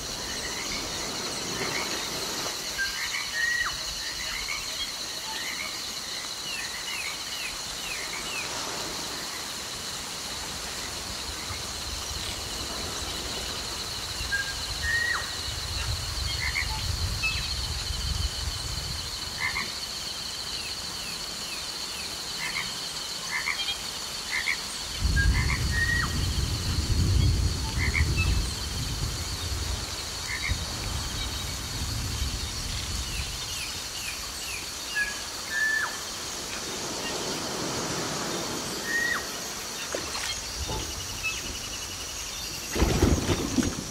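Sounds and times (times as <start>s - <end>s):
frogs croaking: 0.0s - 43.9s
high-pitched insect chorus: 0.0s - 43.9s
river water rushing: 33.8s - 43.9s.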